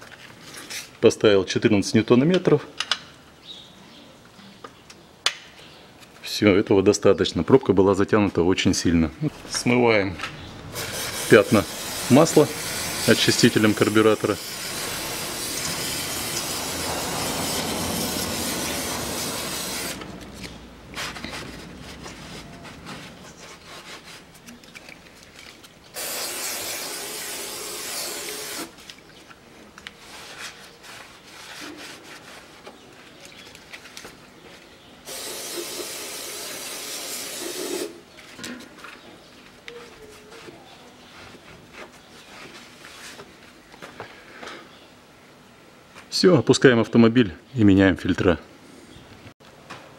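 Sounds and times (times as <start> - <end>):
aerosol can spraying hiss: 10.7 - 20.1, 26.0 - 28.7, 35.1 - 38.0.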